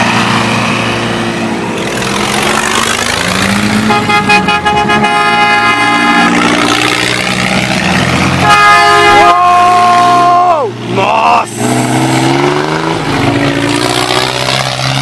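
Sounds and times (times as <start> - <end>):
buggy engines revving: 0.0 - 15.0
vehicle horn: 3.8 - 6.6, 8.4 - 10.3.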